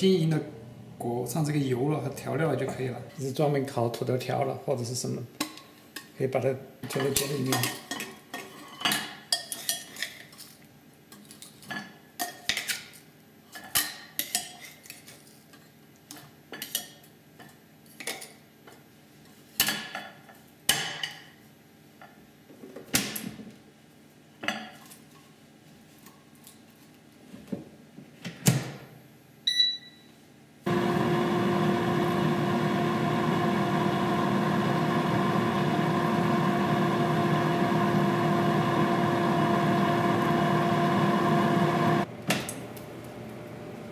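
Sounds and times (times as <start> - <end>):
short beeps: 29.5 - 30.1
air fryer fan hum with whine: 30.7 - 43.9.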